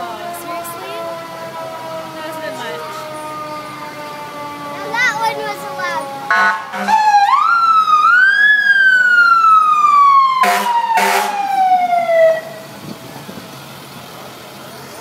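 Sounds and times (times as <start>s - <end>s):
mechanical siren wailing: 0.0s - 12.6s
short horn blasts: 10.4s - 11.4s.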